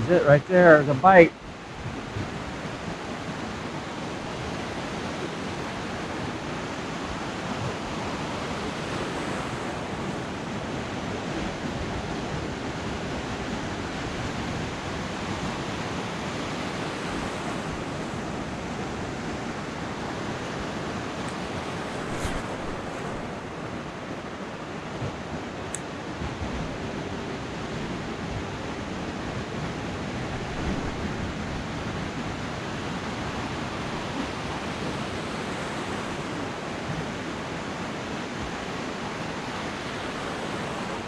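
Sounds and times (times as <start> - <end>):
ocean surf breaking on beach: 0.0 - 41.0.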